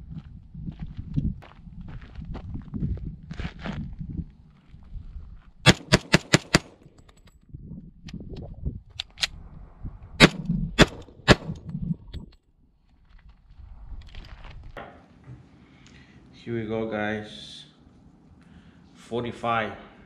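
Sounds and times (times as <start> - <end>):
pistol shots: 5.7 - 6.8, 10.2 - 11.6.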